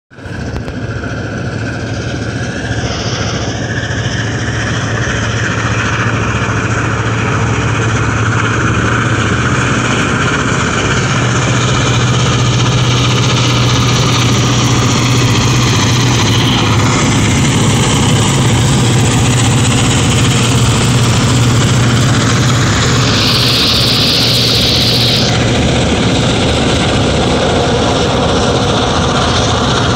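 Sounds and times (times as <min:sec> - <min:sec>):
diesel locomotive engine drone: 0:00.1 - 0:29.9
brief high-pitched sound: 0:22.3 - 0:25.4.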